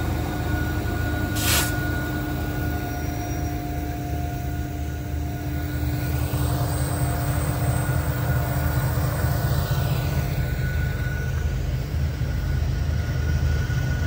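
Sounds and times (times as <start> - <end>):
freight cars rolling by: 0.0 - 14.0
locomotive engine rumble: 0.0 - 14.0
turbocharger whine: 0.0 - 14.0
short hiss: 1.4 - 1.8.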